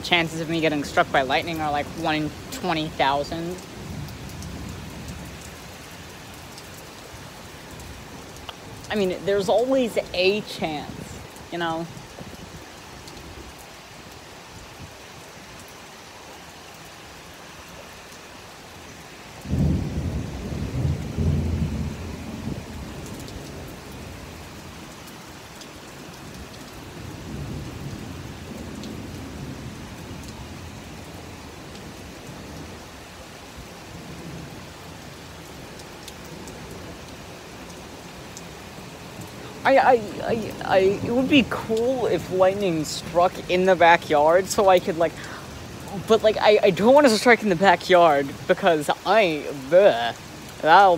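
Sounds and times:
heavy rain falling: 0.0s - 50.9s
thunder rumbling: 19.4s - 24.2s.

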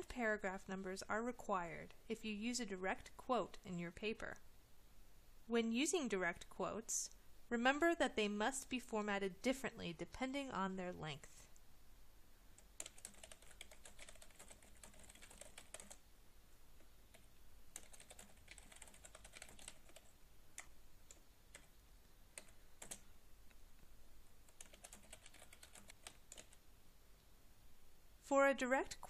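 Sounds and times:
faint keyboard typing: 12.5s - 16.0s, 16.8s - 26.7s.

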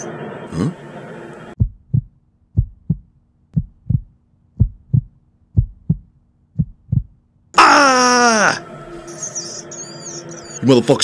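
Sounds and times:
heartbeat thuds: 1.6s - 7.2s.

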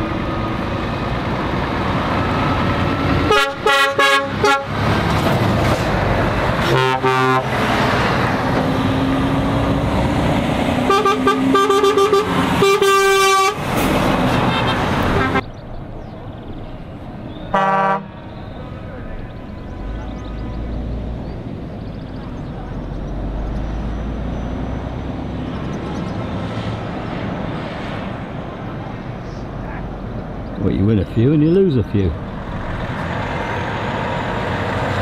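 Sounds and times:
lorry diesel engines pulling away: 0.0s - 35.0s
air horn blasts: 3.2s - 4.8s, 6.6s - 7.5s, 10.9s - 13.6s, 15.2s - 15.4s, 17.5s - 18.2s.

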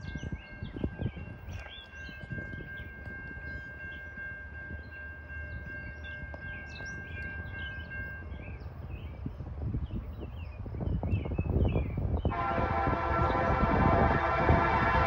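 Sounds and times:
birds chirping: 0.0s - 15.0s
low train rumble: 0.0s - 15.0s
distant train horn: 12.3s - 15.0s.

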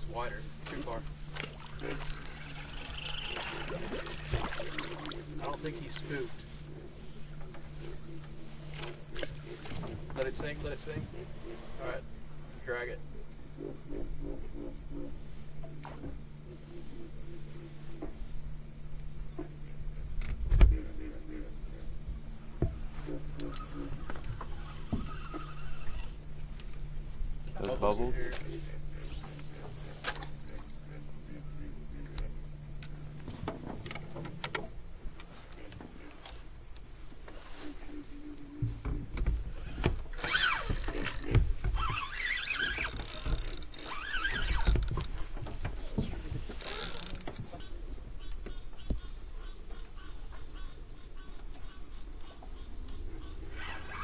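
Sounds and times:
insects trilling: 0.0s - 54.0s
low steady hum: 0.0s - 54.0s
knocks in a small boat: 22.1s - 25.5s, 38.5s - 42.0s, 42.6s - 47.7s
wavering squeaky tones: 22.8s - 26.5s, 39.6s - 47.7s, 53.2s - 54.0s.

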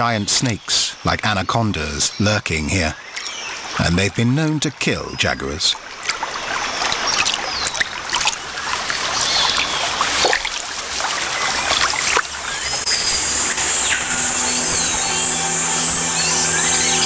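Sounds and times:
water splashing and sloshing: 2.9s - 17.0s
music: 12.6s - 17.0s.

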